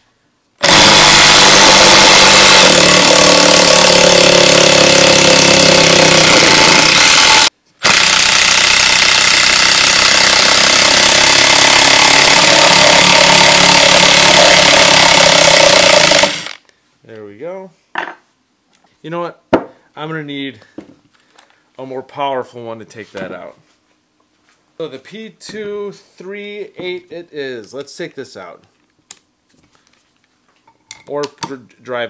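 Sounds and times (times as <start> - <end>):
impact driver hammering: 0.6 - 16.6.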